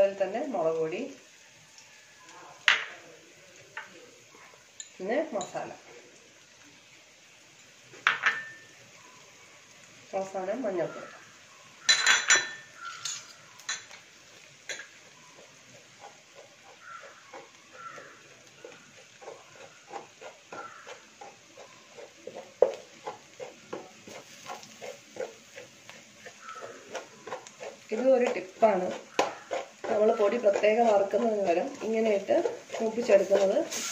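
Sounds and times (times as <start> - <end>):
metal clatter against pot: 11.9 - 14.0
spatula scraping metal pot: 14.7 - 33.9.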